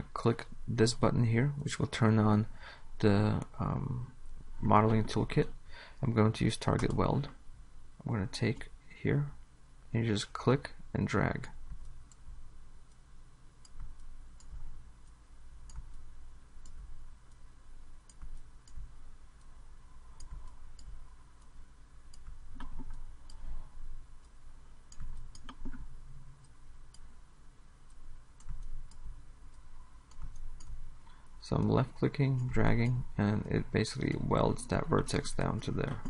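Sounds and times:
low steady hum: 0:00.0 - 0:36.0
computer mouse clicking: 0:13.6 - 0:17.4, 0:18.1 - 0:19.0, 0:20.1 - 0:23.5, 0:24.2 - 0:27.1, 0:27.9 - 0:30.9.

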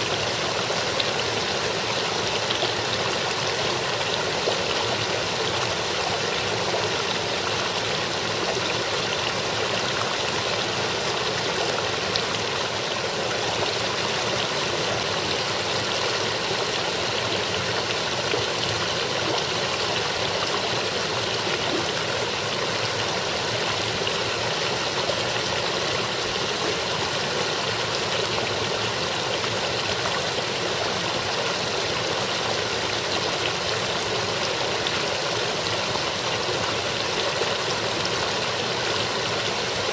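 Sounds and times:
brook babbling over rocks: 0:00.0 - 0:39.9.

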